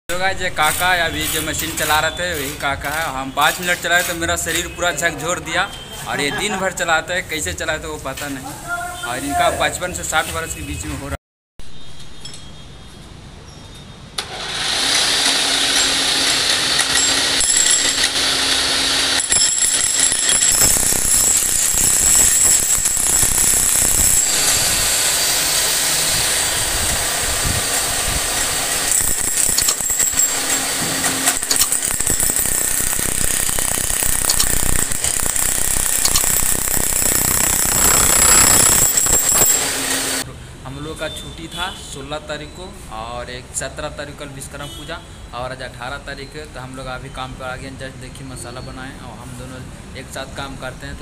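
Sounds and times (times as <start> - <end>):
demolition hammer chipping concrete: 14.5 - 40.2.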